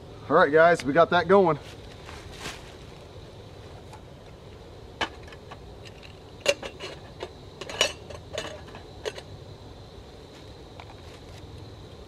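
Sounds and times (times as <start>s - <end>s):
metal cup and lid clinking: 5.0s - 9.3s.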